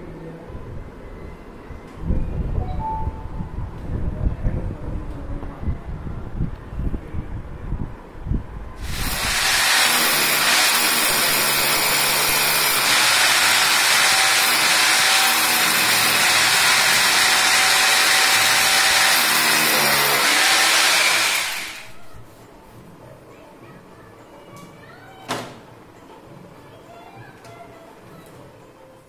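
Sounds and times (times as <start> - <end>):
power drill boring into wall: 8.8 - 22.0.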